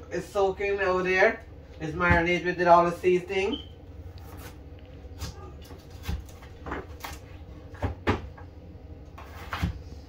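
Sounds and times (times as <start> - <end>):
knife cutting potatoes: 9.2 - 9.8.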